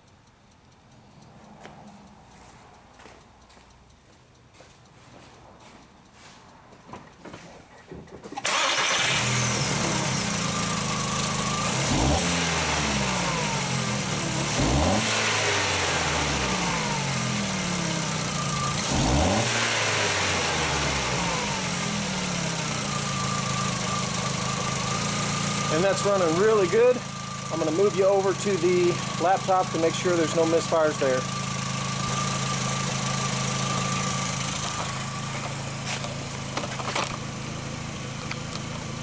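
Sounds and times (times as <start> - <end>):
car engine starting and idling: 7.9 - 39.0
car engine revving: 8.4 - 39.0.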